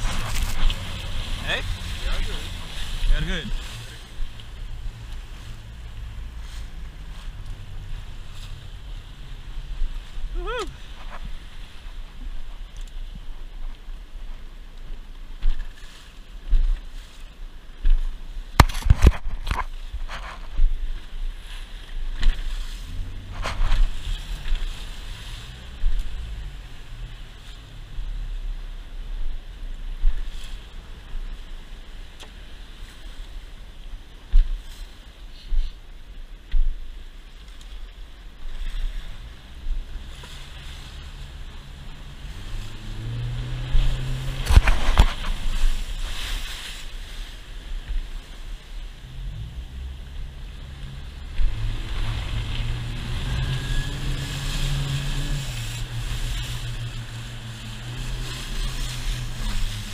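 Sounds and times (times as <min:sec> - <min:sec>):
hull slapping through waves: 0:00.0 - 0:28.4, 0:36.4 - 0:59.9
low engine hum: 0:00.0 - 0:59.9
wind buffeting microphone: 0:38.3 - 0:59.9.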